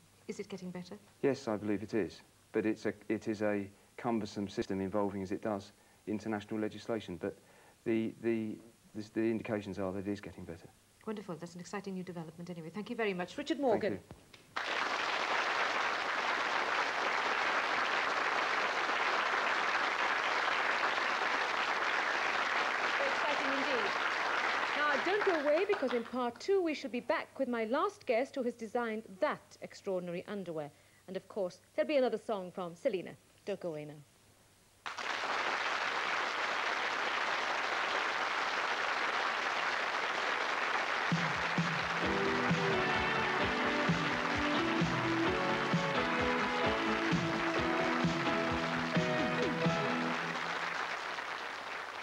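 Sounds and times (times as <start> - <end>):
audience applauding: 14.6 - 26.2, 34.8 - 52.0
music with a beat: 41.1 - 50.2.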